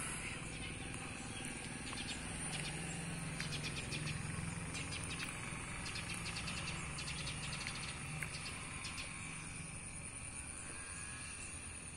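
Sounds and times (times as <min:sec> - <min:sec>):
insects droning: 0:00.0 - 0:11.9
low steady hum: 0:00.0 - 0:11.9
insect clicking chirps: 0:04.8 - 0:09.2.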